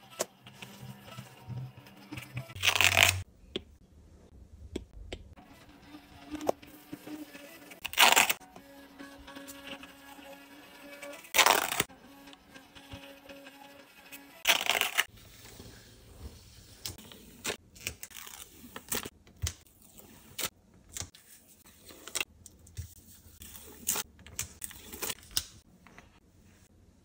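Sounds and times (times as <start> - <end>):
label ripping off: 2.6 - 3.2, 7.8 - 8.4, 11.4 - 11.9, 14.5 - 15.1
sticker paper crackling: 11.3 - 11.9, 14.4 - 15.1.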